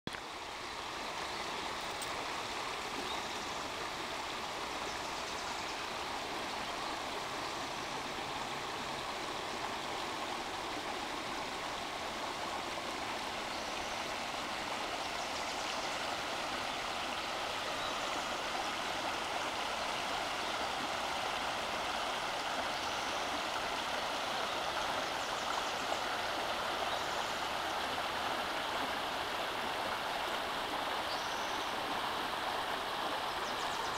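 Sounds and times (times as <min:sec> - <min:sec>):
creek flowing over rocks: 0:00.1 - 0:33.9.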